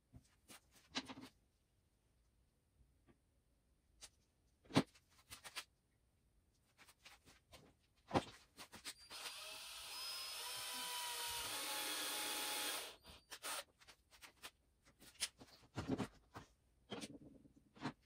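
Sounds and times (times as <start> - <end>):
cordless drill driving screw: 9.0 - 13.7.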